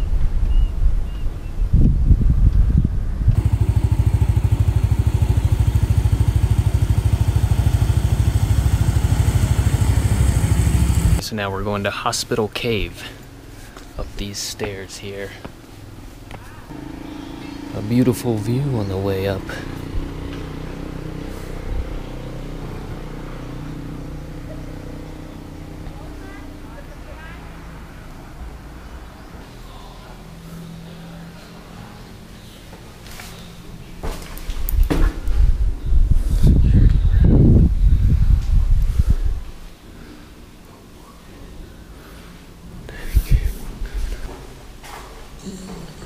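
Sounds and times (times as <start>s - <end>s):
wind buffeting microphone: 0.0s - 11.2s, 34.7s - 39.7s, 43.0s - 44.0s
motorbike engine running: 3.3s - 11.2s, 16.7s - 26.4s.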